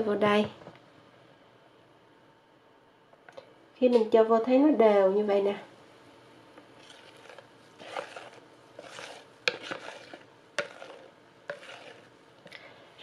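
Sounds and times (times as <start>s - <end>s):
batter pouring and plopping: 6.8s - 12.1s.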